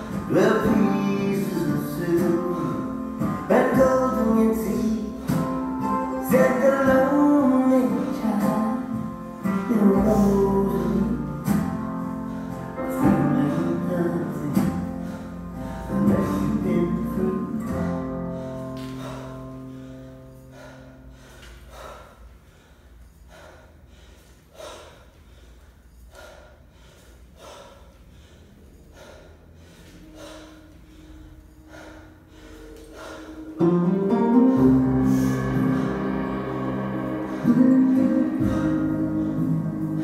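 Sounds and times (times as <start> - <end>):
guitar music: 0.0 - 20.4, 33.5 - 40.0.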